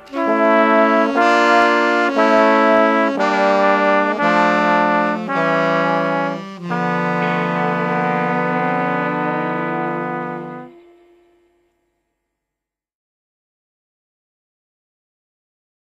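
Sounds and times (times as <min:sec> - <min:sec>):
ska horn section playing chords: 0:00.0 - 0:11.7.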